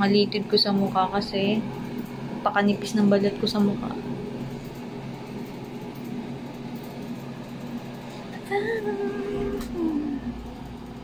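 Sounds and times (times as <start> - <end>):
low electrical hum: 0.0 - 11.0
woman humming: 8.3 - 10.6.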